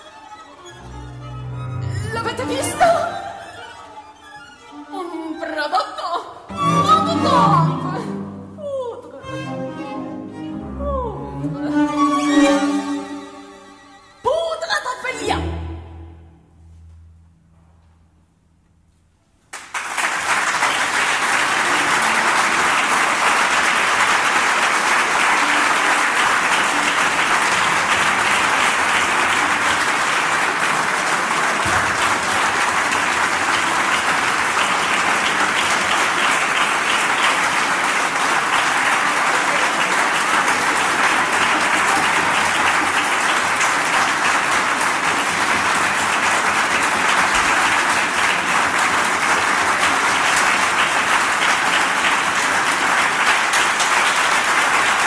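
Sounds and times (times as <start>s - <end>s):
audience applause: 19.5s - 55.0s.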